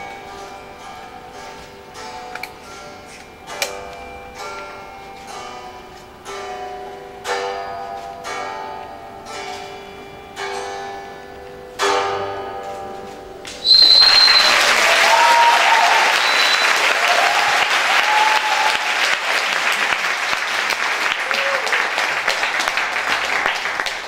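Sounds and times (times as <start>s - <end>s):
high whistle: 13.6s - 18.9s
audience applauding: 13.6s - 24.0s
cheering voices: 13.6s - 24.0s.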